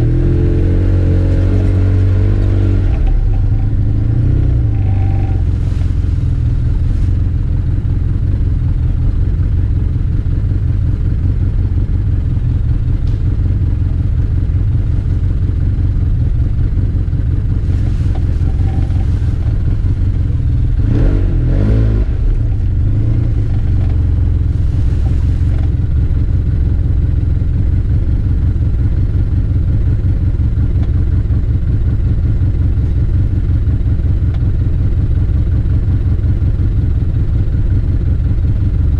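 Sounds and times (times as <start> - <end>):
engine running and revving: 0.0 - 38.9.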